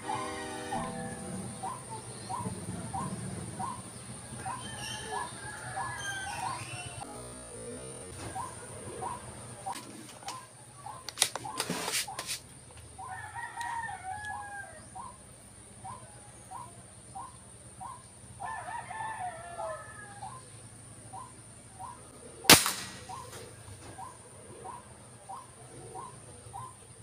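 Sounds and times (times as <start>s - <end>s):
birds calling: 0.0s - 27.0s
air rifle shot: 22.5s - 23.5s.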